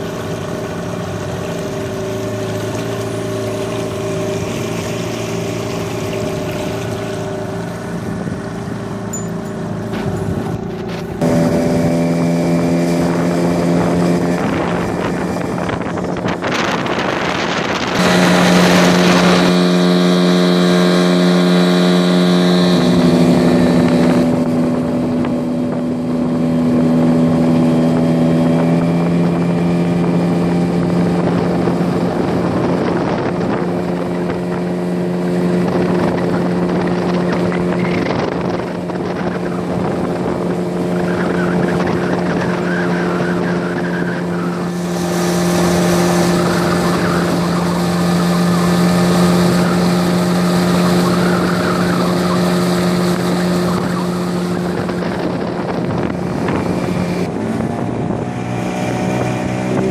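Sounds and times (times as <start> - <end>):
outboard motor running: 0.0 - 59.9
wind rush on microphone: 0.0 - 59.9.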